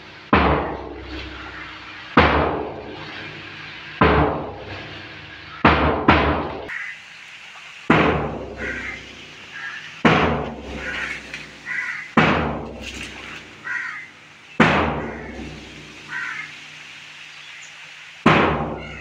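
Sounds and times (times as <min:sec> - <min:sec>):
large drum beating: 0:00.3 - 0:05.0, 0:05.6 - 0:06.7, 0:07.9 - 0:09.1, 0:10.0 - 0:13.6, 0:14.6 - 0:16.2, 0:18.3 - 0:19.0.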